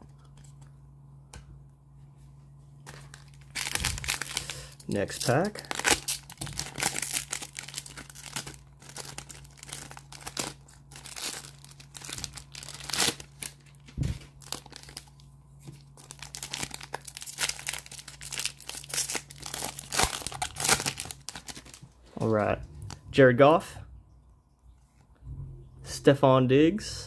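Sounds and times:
foil wrapper crinkling and tearing: 2.9s - 22.0s.

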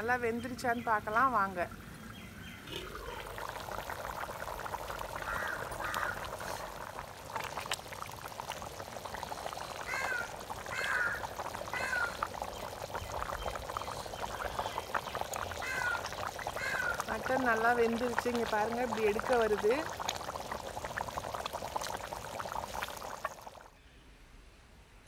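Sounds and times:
curry bubbling in a pot: 0.1s - 23.8s
crow cawing: 5.2s - 6.7s, 9.9s - 12.2s, 15.6s - 17.1s.

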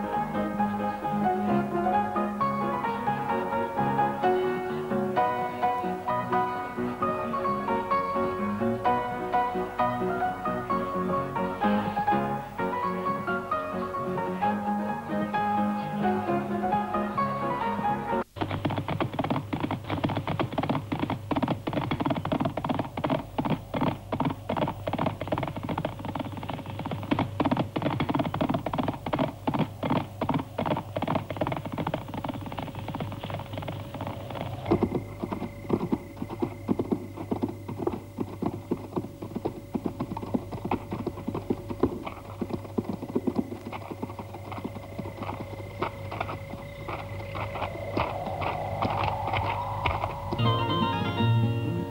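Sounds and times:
horse hooves clip-clopping: 18.2s - 51.9s
steady hum: 33.4s - 51.9s.

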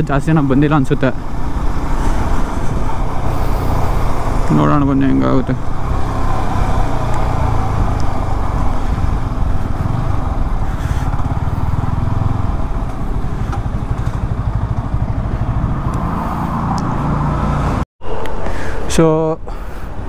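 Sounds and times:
wind and road noise: 0.0s - 20.0s
motorcycle engine running: 0.3s - 17.8s.

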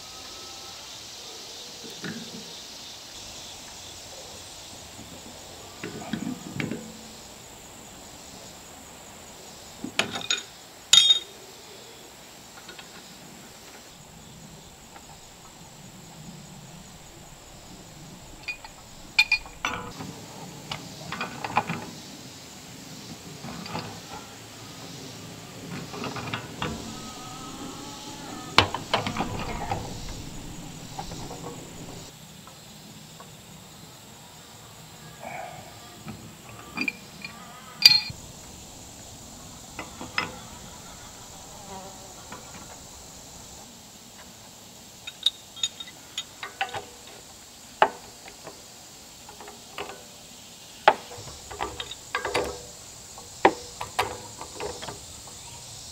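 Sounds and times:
wrench clanking on steel pipe: 11.0s - 11.3s, 14.7s - 19.9s.

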